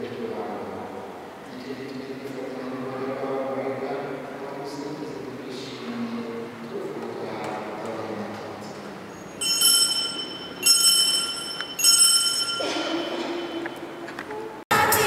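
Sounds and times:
altar bells ringing: 9.4s - 14.0s.

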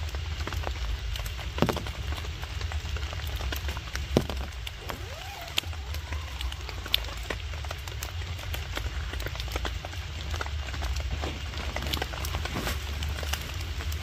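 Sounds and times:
low steady rumble: 0.0s - 14.0s
raindrops tapping on a tarp: 0.0s - 14.0s
sharp knocks: 1.6s - 2.3s, 4.1s - 4.7s.

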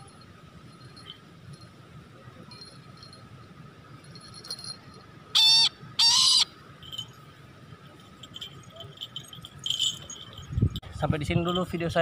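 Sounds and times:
kite bird calling: 5.4s - 6.5s.

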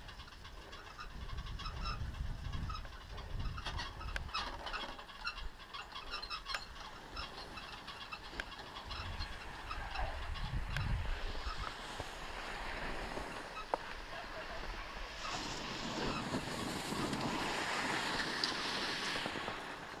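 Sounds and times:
wind buffeting microphone: 0.0s - 5.6s, 6.2s - 20.0s
skis scraping over hard snow: 11.1s - 20.0s.

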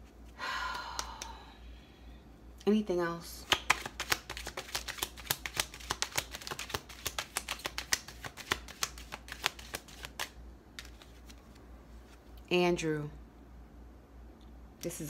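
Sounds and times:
cards being shuffled: 3.4s - 12.2s.

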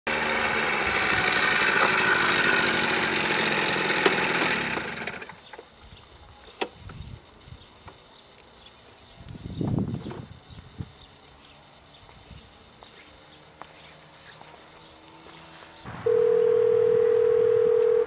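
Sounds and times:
scooter engine running: 0.1s - 5.8s, 12.6s - 15.9s.

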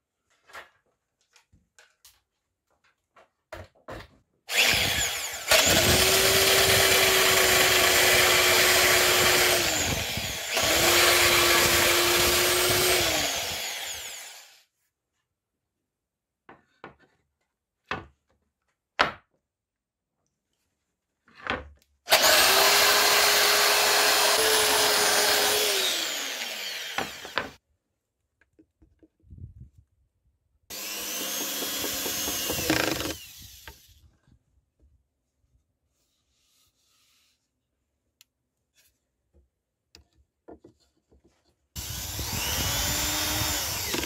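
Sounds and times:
belt sander on wood: 4.5s - 14.5s, 22.1s - 27.6s, 30.7s - 33.8s, 41.8s - 44.0s.

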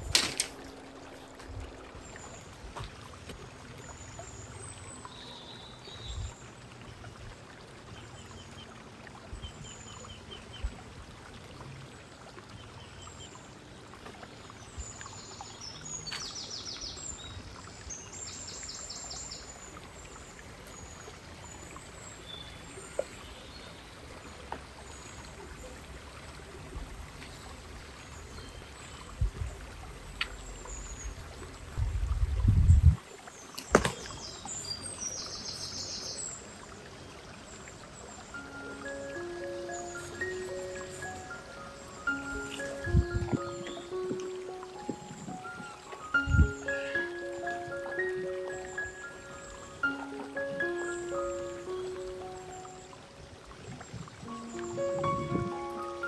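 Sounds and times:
small birds chirping: 33.4s - 36.5s
soft low thumps: 42.8s - 46.5s.

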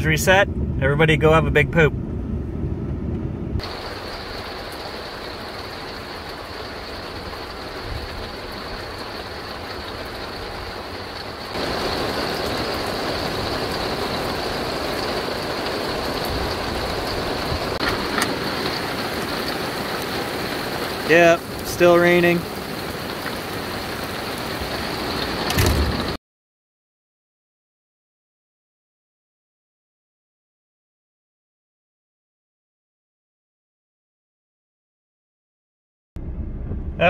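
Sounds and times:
rain: 3.6s - 26.2s
truck tyre spray on wet road: 3.6s - 26.2s.

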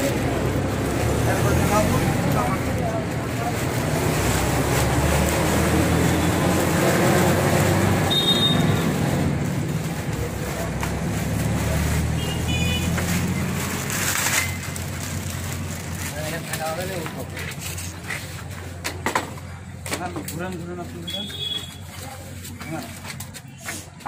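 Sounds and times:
plastic wrapping crinkling: 0.0s - 18.8s.

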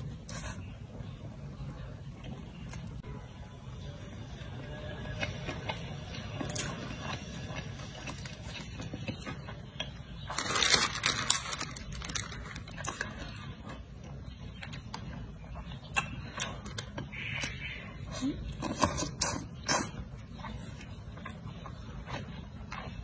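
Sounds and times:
paper wrapping tearing and crinkling: 10.3s - 12.7s
chewing with wet mouth clicks: 12.7s - 17.8s.

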